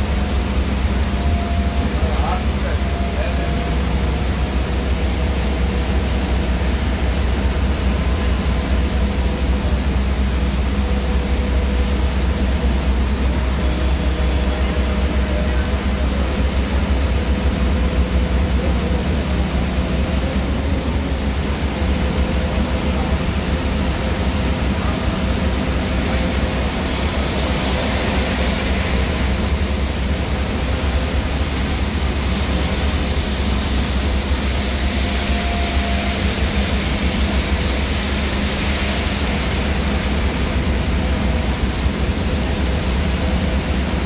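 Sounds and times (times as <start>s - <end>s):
bus engine and road rumble: 0.0s - 44.0s
rain and tyre spray hiss: 3.6s - 44.0s.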